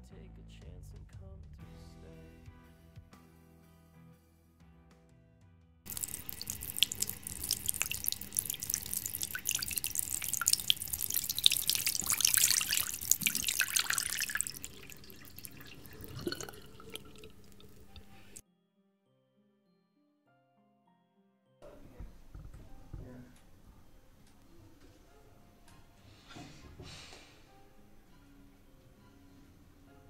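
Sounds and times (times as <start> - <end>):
water dripping: 5.9 - 18.4
water running from tap: 5.9 - 18.4.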